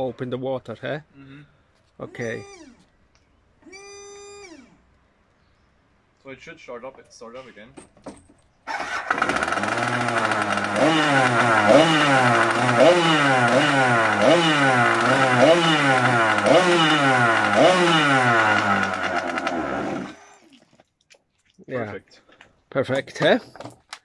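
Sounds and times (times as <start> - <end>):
small two-stroke engine revving: 8.7 - 20.4.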